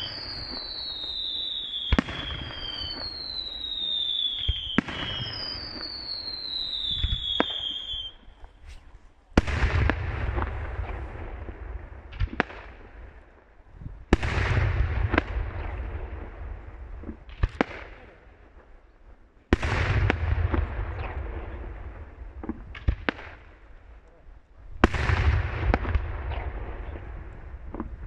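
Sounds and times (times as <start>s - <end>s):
rumble and crackle: 8.3s - 28.0s.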